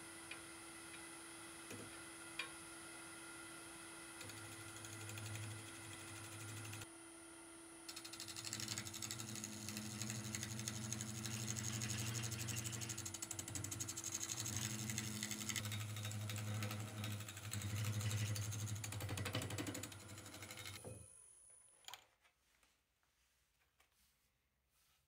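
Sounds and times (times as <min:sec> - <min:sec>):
lathe motor hum: 0:03.7 - 0:06.9, 0:07.9 - 0:20.8.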